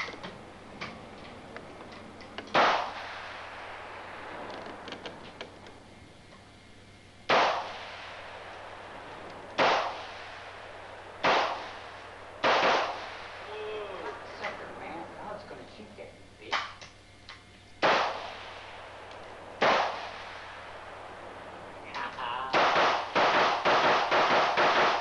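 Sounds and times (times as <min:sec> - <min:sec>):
rifle shots with echo: 0:02.5 - 0:04.4, 0:07.3 - 0:08.9, 0:09.6 - 0:13.5, 0:17.8 - 0:21.2, 0:22.5 - 0:25.0.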